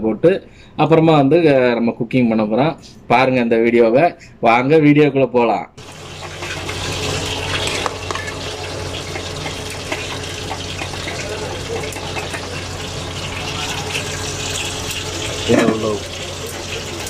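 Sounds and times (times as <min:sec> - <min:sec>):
water boiling in a pot: 0:05.8 - 0:17.0.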